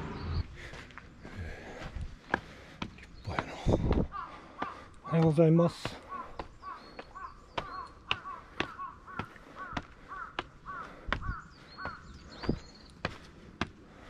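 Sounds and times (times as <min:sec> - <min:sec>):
footsteps walking: 0:00.5 - 0:14.0
bird giving short calls: 0:05.9 - 0:12.6.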